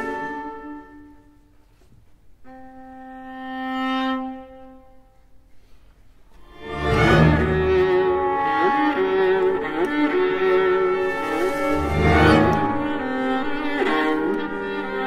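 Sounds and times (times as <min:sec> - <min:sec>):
full orchestra with deep bass: 0:06.4 - 0:15.0.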